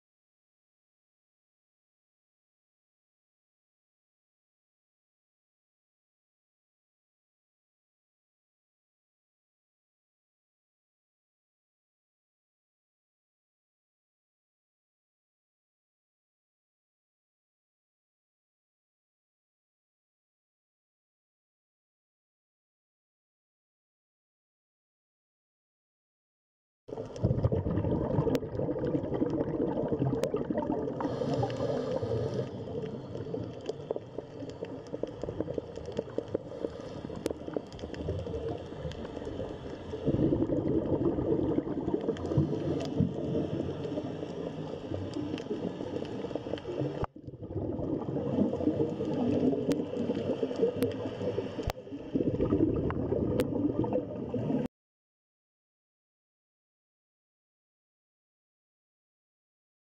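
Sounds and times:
underwater gurgling and bubbling: 0:26.9 - 0:54.7
faint clicks: 0:31.0 - 0:40.1, 0:48.6 - 0:51.8.

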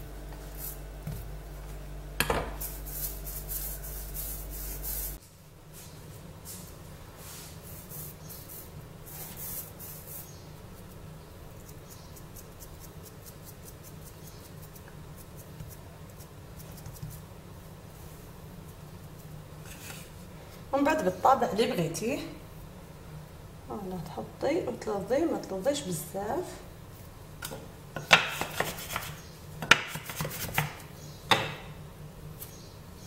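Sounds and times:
low hum: 0:00.0 - 0:05.2
hands rolling dough on countertop: 0:00.3 - 0:05.2, 0:27.4 - 0:31.6.

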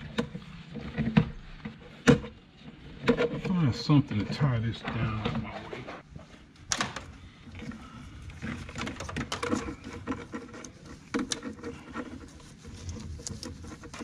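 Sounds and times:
plastic fittings clicking and knocking: 0:08.4 - 0:12.1.

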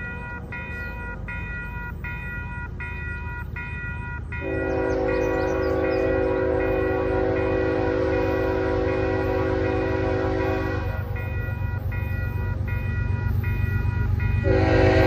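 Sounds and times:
crossing bell ringing: 0:00.0 - 0:15.0
locomotive air horn: 0:04.4 - 0:11.1, 0:14.4 - 0:15.0.

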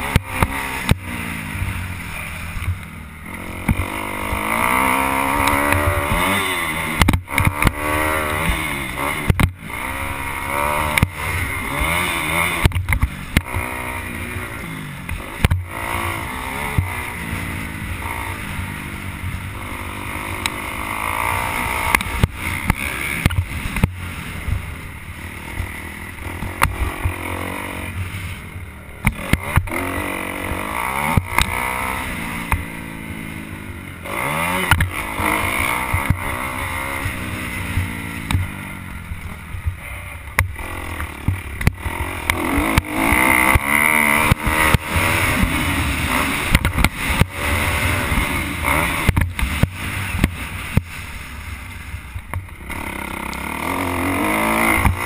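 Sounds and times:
motocross bike engine revving: 0:00.0 - 0:55.0
bike knocking and rattling: 0:02.4 - 0:17.2, 0:28.9 - 0:32.8, 0:34.0 - 0:51.1, 0:54.3 - 0:55.0.

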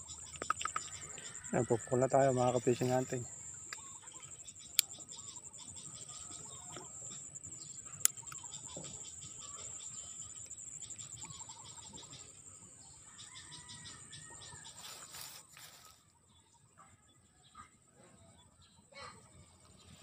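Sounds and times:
birds calling: 0:00.0 - 0:15.9
insects buzzing and chirping: 0:00.0 - 0:16.6.

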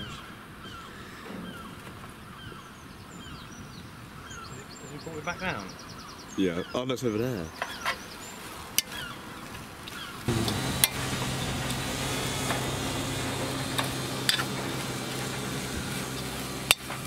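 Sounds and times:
drone motors humming: 0:10.2 - 0:17.0.

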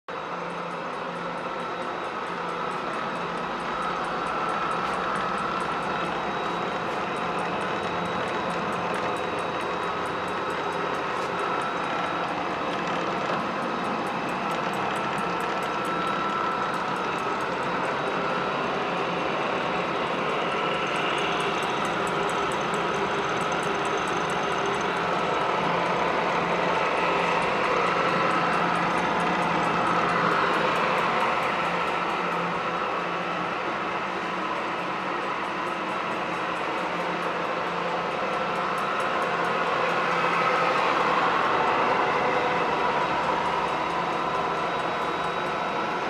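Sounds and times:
faint steady whine: 0:00.1 - 0:46.0
machinery humming: 0:00.1 - 0:46.0.

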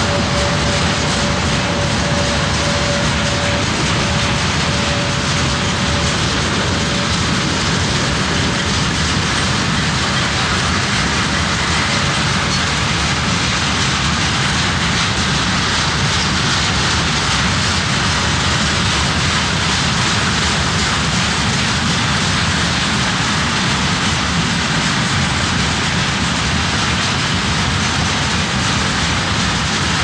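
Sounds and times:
faint high whine: 0:00.0 - 0:08.4
train wheels on rails: 0:00.0 - 0:30.0.

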